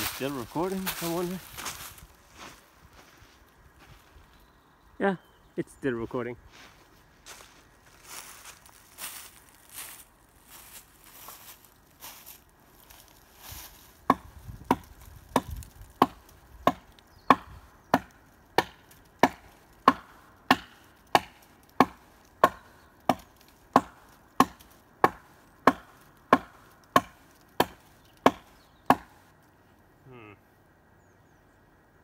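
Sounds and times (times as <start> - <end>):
hatchet chopping wood: 14.1 - 29.2.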